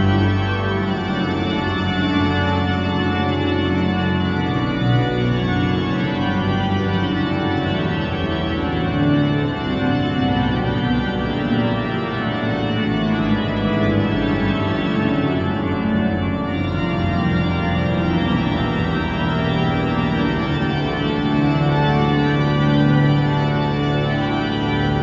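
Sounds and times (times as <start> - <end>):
pipe organ playing chords: 0.0 - 25.0.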